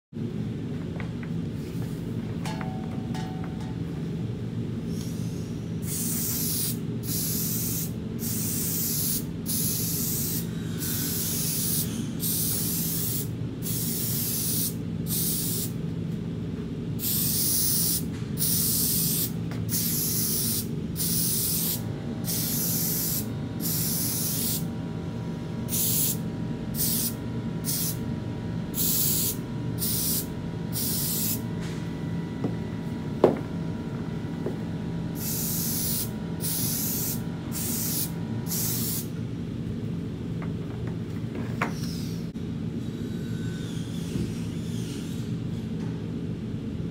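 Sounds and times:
steady low hum: 0.2s - 46.9s
spray gun hissing in short bursts: 4.9s - 15.8s, 17.0s - 24.7s, 25.7s - 28.0s, 28.8s - 31.4s, 35.2s - 39.1s.

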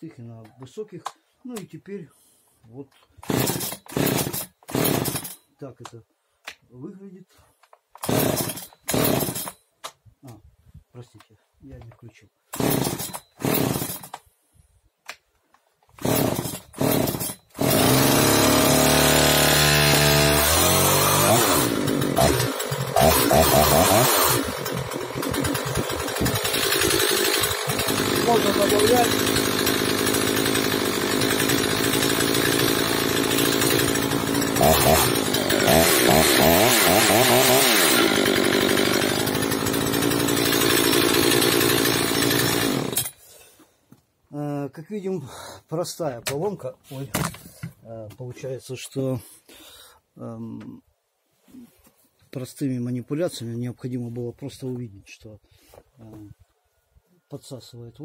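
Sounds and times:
chainsaw engine running: 3.2s - 5.4s, 8.0s - 9.6s, 12.5s - 14.1s, 16.0s - 43.2s
starter cord pulls: 21.2s - 43.2s.

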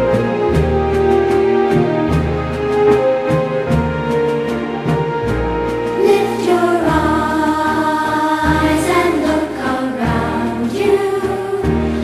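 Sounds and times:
children's song with backing music: 3.6s - 12.0s.

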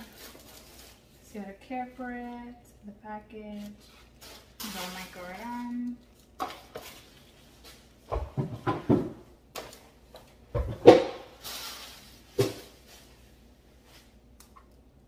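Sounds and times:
tissue paper rustling: 0.0s - 1.3s
frame and box knocking: 8.1s - 9.2s.

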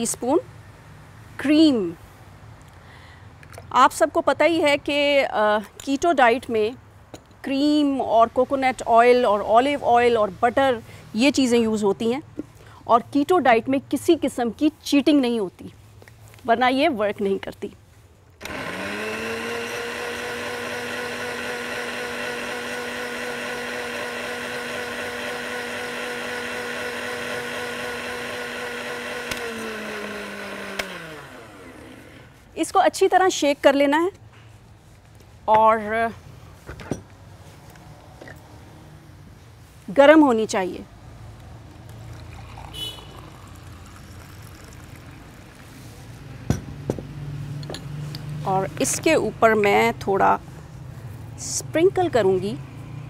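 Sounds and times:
blender motor running: 18.4s - 32.3s, 42.1s - 45.6s
blender switch click: 29.3s - 29.5s
coffee pouring into a mug: 41.8s - 45.8s.

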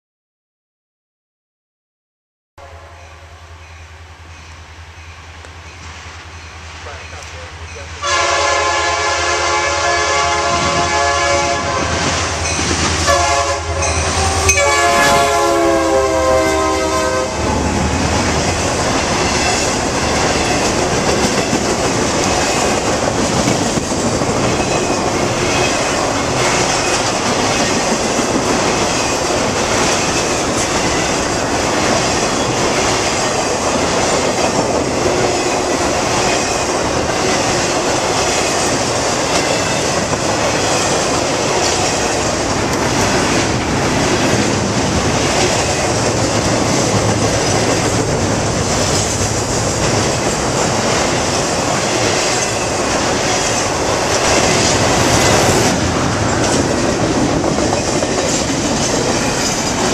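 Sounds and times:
train horn blasts: 2.6s - 3.6s, 8.0s - 12.4s, 13.0s - 17.8s
diesel locomotive rumble: 4.0s - 59.9s
train wheels clacking on rails: 12.0s - 15.6s, 17.4s - 59.9s.

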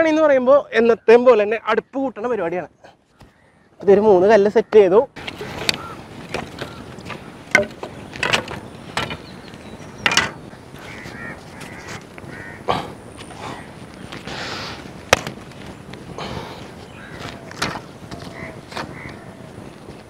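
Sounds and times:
birds calling: 0.0s - 20.0s
firewood sticks knocking: 5.2s - 12.4s, 15.0s - 20.0s.

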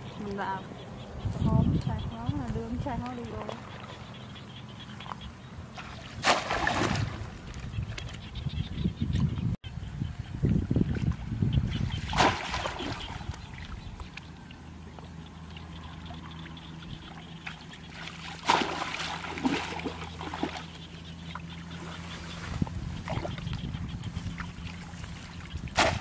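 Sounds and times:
low steady hum: 0.0s - 26.0s
water splashing and trickling: 2.4s - 8.5s, 10.3s - 26.0s.

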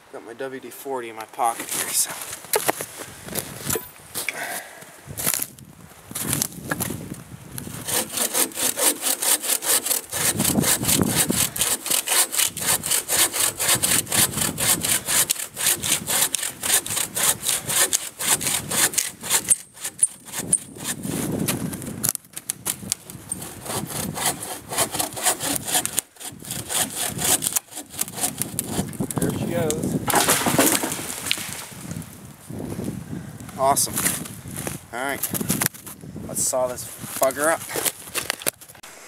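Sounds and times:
hand saw cutting log: 7.7s - 21.6s, 22.7s - 31.5s.

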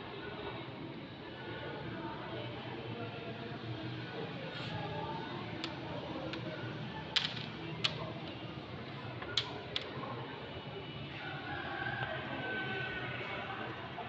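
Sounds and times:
checkers pieces clicking on board: 7.2s - 8.0s, 9.3s - 9.9s.

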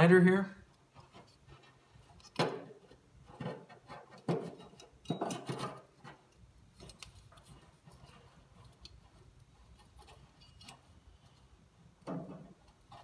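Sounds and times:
sharp clicks and metal knocks: 2.2s - 7.4s.

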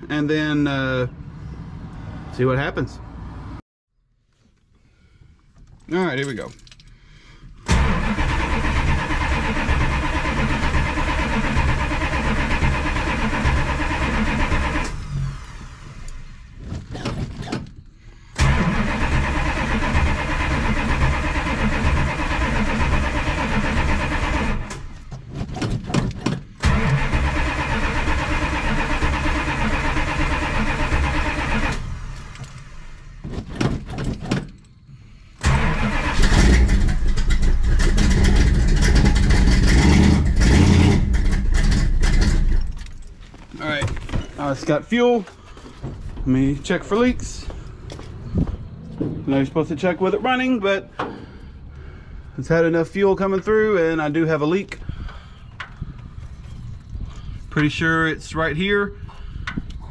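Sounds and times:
starter cranking engine: 7.6s - 16.2s, 18.4s - 25.0s, 26.6s - 32.6s, 35.4s - 42.6s.

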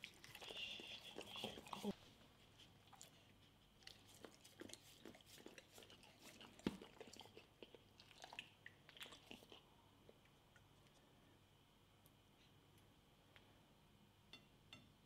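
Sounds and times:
dog licking coconut: 0.0s - 9.7s.

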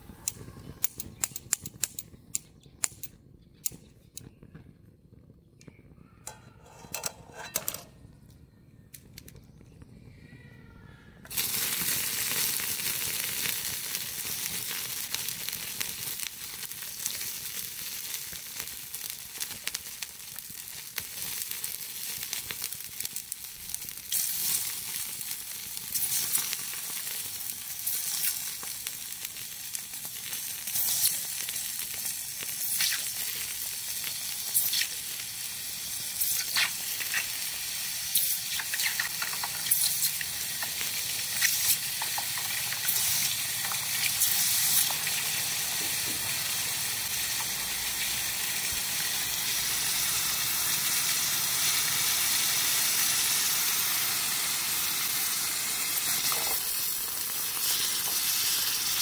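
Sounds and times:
hot metal sizzling on plastic: 11.3s - 59.0s
sharp pops: 22.5s - 35.3s, 36.1s - 46.3s.

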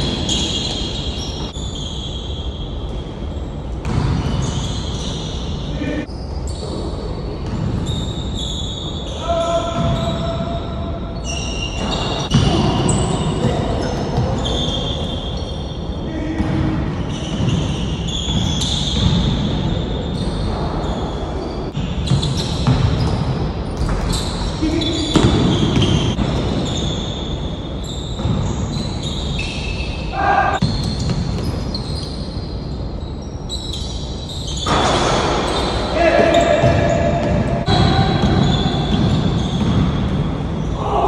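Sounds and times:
basketball bouncing on a court: 3.8s - 4.7s, 7.4s - 8.0s, 9.7s - 10.6s, 11.8s - 14.7s, 16.1s - 20.8s, 21.8s - 27.0s, 28.1s - 29.0s, 30.6s - 32.1s, 34.7s - 40.7s
players' voices: 35.9s - 39.6s.

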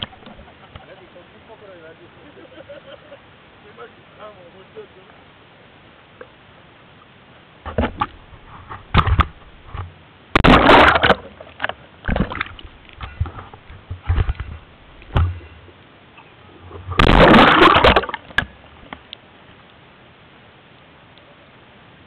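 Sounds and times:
water splashing and sloshing: 7.6s - 19.2s.

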